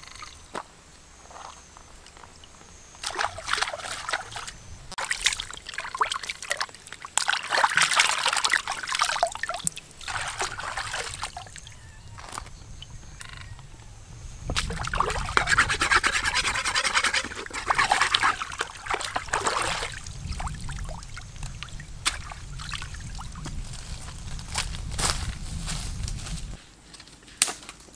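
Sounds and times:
water trickling: 2.3s - 13.2s, 14.5s - 24.4s
hands splashing stream water: 3.0s - 11.6s, 14.5s - 23.5s.

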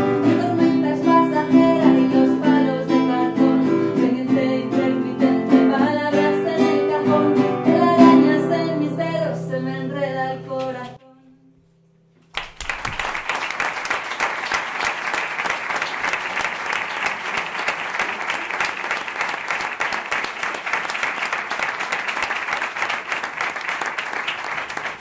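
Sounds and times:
audience applauding: 12.3s - 25.0s.

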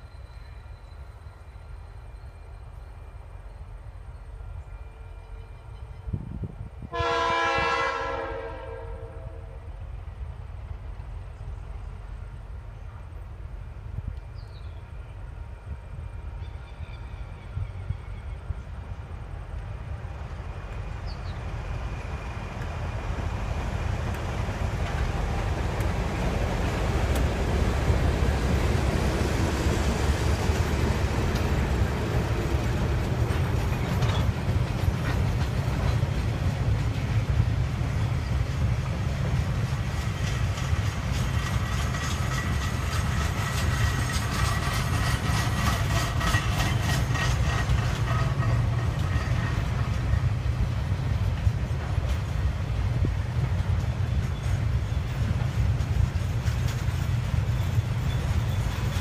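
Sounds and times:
locomotive engine rumble: 0.0s - 59.0s
wheels clacking over rail joints: 20.3s - 59.0s
freight wagons rolling by: 23.4s - 52.8s, 53.4s - 59.0s.

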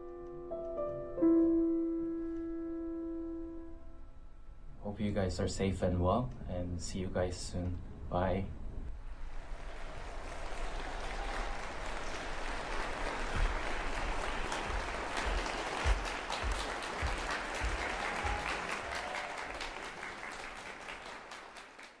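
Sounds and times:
audience applauding: 9.1s - 22.0s.

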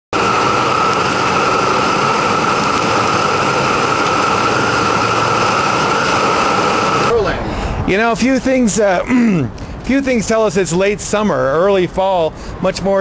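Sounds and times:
gas burners hissing: 0.2s - 13.0s
steady high tone: 9.0s - 11.4s.

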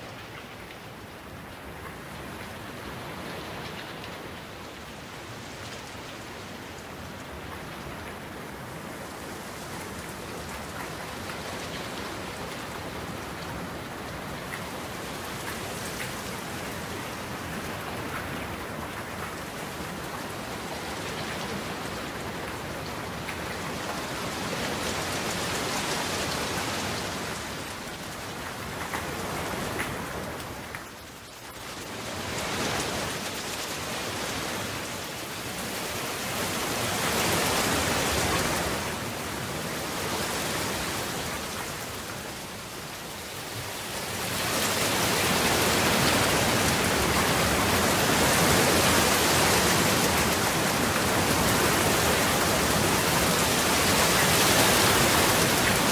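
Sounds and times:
steady rain falling: 0.0s - 55.9s.

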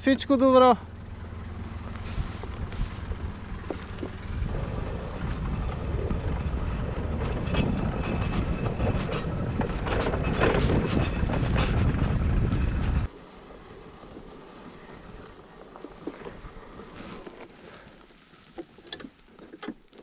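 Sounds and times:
scooter engine running: 0.2s - 18.0s
wind noise on microphone: 1.9s - 13.1s
knocks and rattles: 5.4s - 13.1s.

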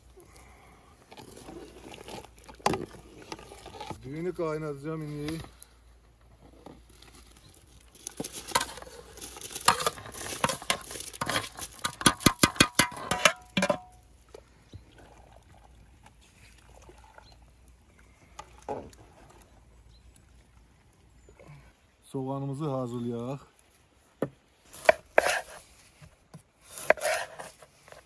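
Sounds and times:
skimmer scraping: 0.0s - 19.7s, 24.6s - 28.0s
faint simmering water: 0.0s - 28.0s
rice pattering into water: 7.2s - 13.7s.

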